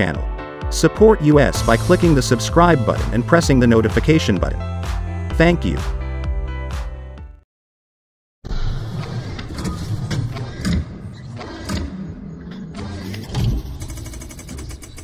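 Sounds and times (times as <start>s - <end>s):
whooshes: 1.6s - 3.3s.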